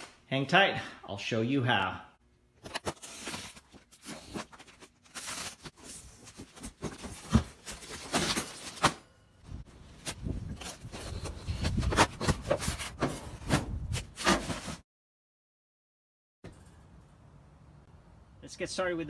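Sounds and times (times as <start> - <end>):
cardboard rustling and scraping: 2.7 - 9.0, 10.0 - 14.8.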